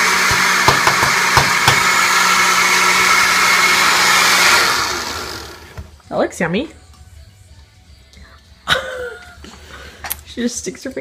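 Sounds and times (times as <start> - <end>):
blender running: 0.0 - 5.9.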